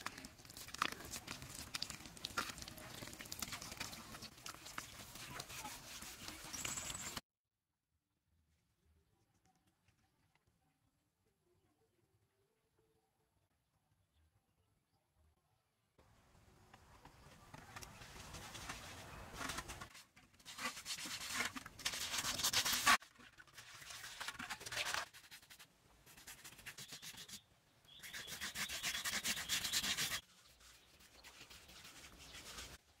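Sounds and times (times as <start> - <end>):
brush scrubbing on cement wall: 3.1 - 6.7, 18.3 - 32.8.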